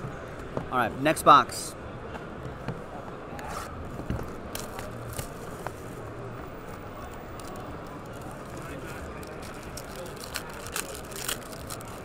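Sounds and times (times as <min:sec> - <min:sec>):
plastic wrapping crinkling: 0:07.0 - 0:12.0.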